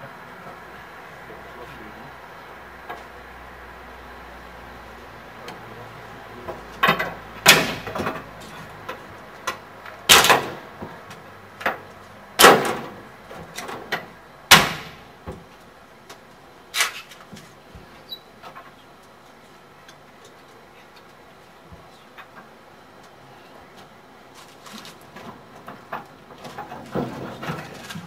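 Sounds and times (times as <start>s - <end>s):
loud metal knocks and clatters: 6.8s - 8.4s, 10.1s - 10.7s.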